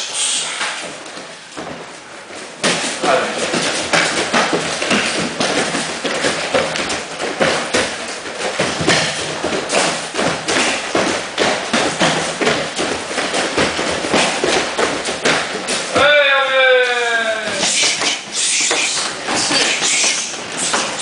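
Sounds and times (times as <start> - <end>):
punches and kicks hitting a pad: 2.6 - 16.2.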